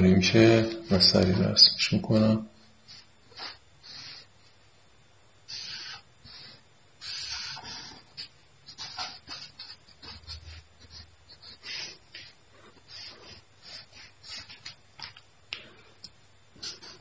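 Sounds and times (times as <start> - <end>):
marker pen scratching on paper: 7.0 - 15.2.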